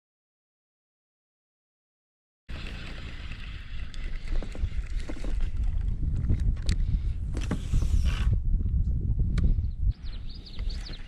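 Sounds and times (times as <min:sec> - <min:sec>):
water lapping against a kayak: 0:02.5 - 0:08.3
wind rumbling on microphone: 0:02.5 - 0:11.0.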